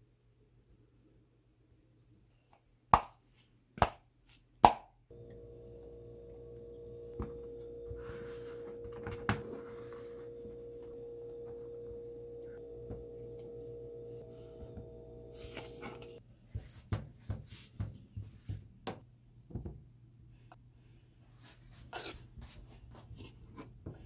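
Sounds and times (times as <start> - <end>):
steady humming tone: 5.1 - 16.2.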